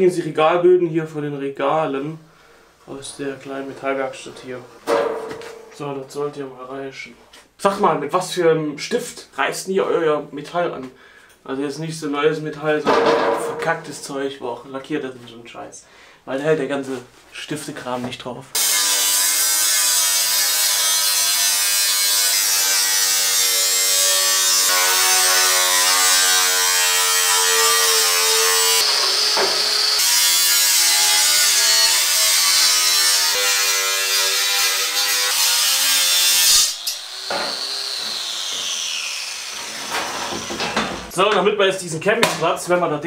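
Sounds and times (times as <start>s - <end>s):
angle grinder cutting steel: 18.6s - 40.8s.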